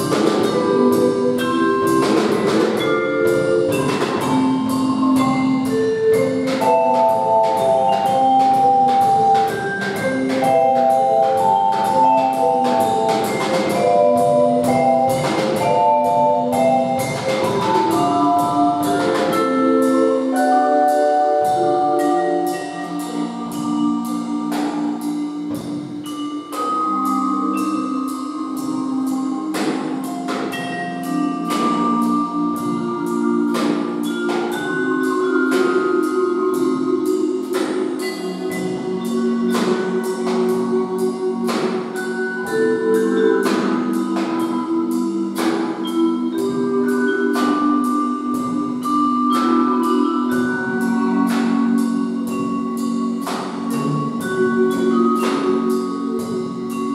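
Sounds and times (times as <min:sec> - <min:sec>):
drum kit beat: 0:00.0 - 0:56.9
mallet keyboard ringing notes: 0:00.0 - 0:56.9.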